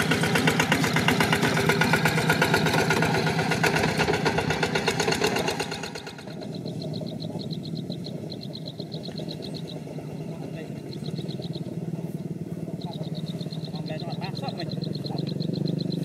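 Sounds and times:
diesel tractor engine chugging: 0.0 - 16.0
fast high-pitched chirping: 5.1 - 12.1, 12.7 - 16.0.

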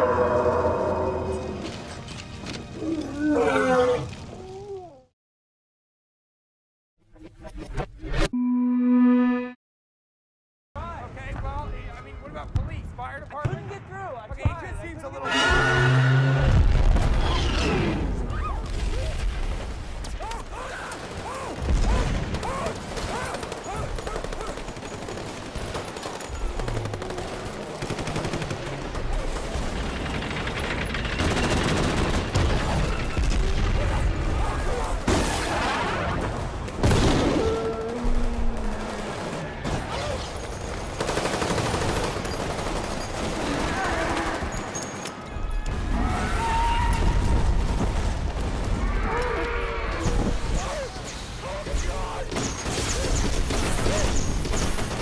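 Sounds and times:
film score music: 0.0 - 4.5
rapid automatic gunfire: 20.9 - 33.1, 38.0 - 44.5, 52.3 - 55.0.

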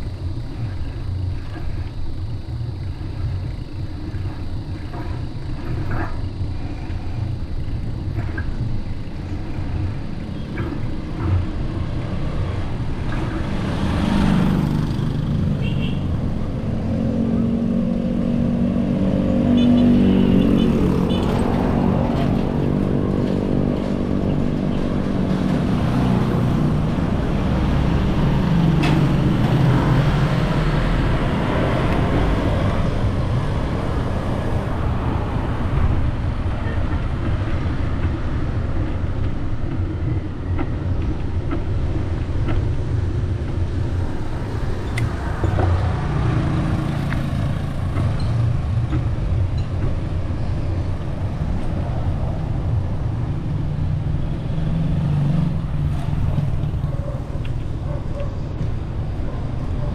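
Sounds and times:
wind and road noise: 0.0 - 59.9
motor scooter passing: 12.2 - 36.3, 43.8 - 49.5.

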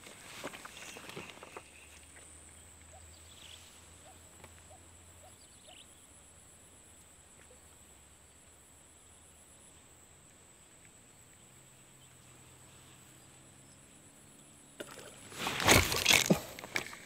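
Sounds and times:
soft bird chirps: 0.8 - 6.1.

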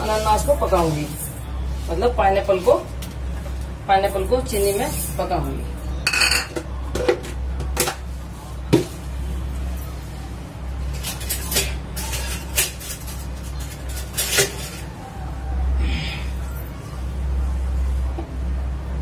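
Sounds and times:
bowls knocking and clinking: 6.0 - 7.9.

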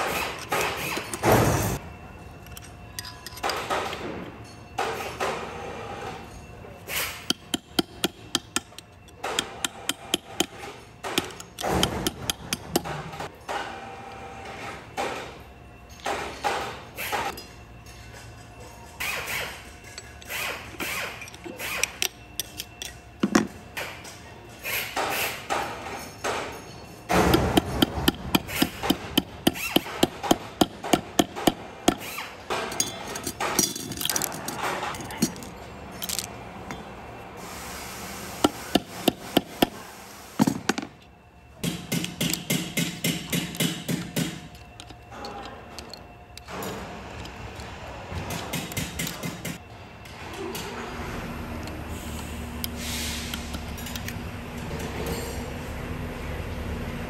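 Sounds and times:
metal parts clinking: 0.0 - 5.3, 17.2 - 24.3, 28.0 - 36.9, 42.0 - 47.7, 53.5 - 54.2.

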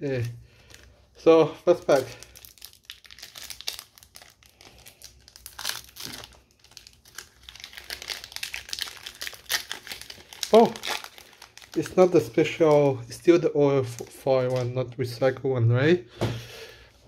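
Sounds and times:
foil wrapper tearing and crinkling: 1.7 - 13.0.

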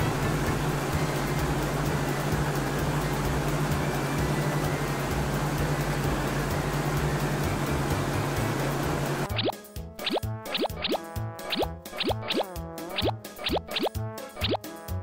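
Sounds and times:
helicopter engine and rotor: 0.0 - 9.2.

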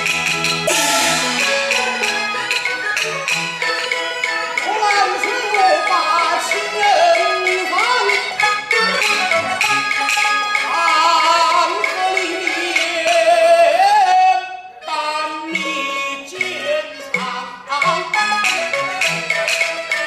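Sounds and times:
sharp percussion strokes: 0.0 - 5.6
chinese opera melody with vibrato: 0.0 - 20.0.

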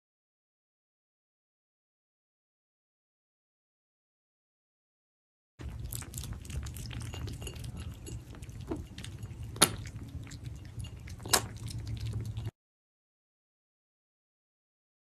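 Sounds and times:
cat licking kittens: 5.6 - 12.5.

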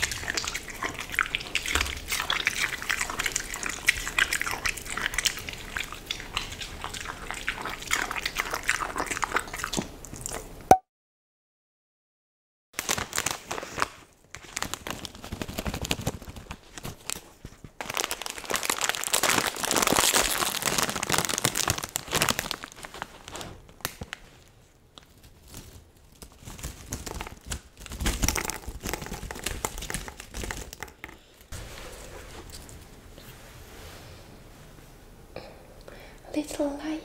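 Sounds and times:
plastic snack bag crinkling: 0.0 - 1.6, 12.8 - 31.5.

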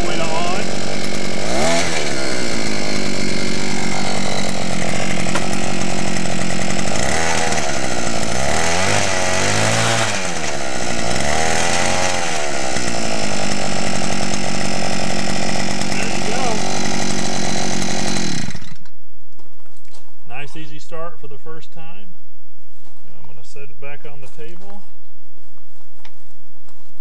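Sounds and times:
two-stroke auger engine running: 0.0 - 18.9.

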